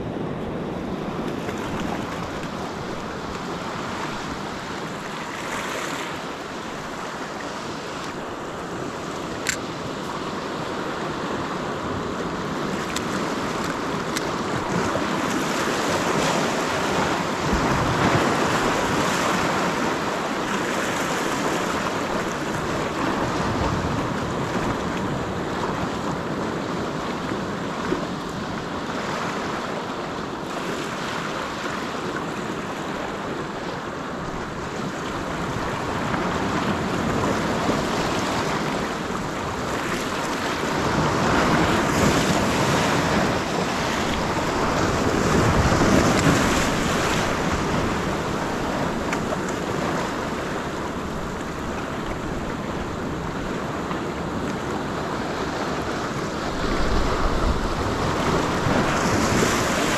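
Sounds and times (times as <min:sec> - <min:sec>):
sea surf washing over rocks: 0:00.0 - 0:59.9
sharp click: 0:09.4 - 0:09.6
wind buffeting microphone: 0:32.5 - 0:59.9.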